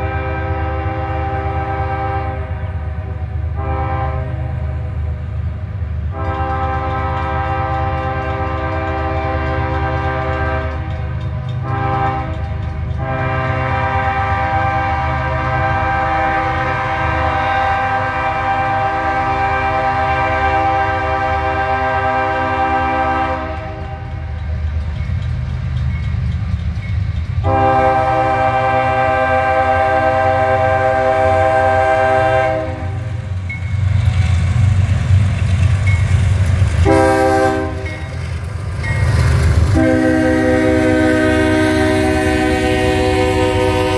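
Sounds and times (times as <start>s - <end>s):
locomotive horn blasts: 0.0s - 5.0s, 6.1s - 24.2s, 27.4s - 33.2s, 36.8s - 38.1s, 39.6s - 43.9s
diesel locomotive rumble: 0.0s - 43.9s.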